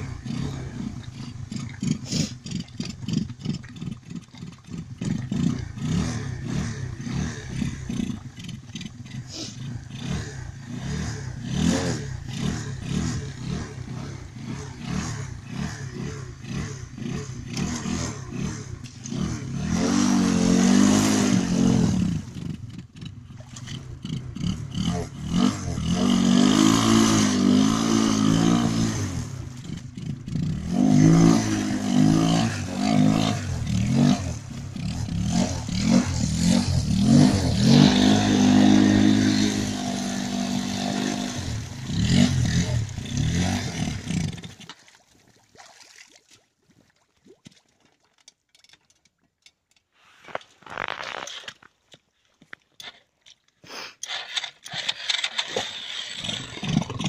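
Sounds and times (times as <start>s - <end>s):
motorcycle engine revving hard: 0.0s - 44.7s.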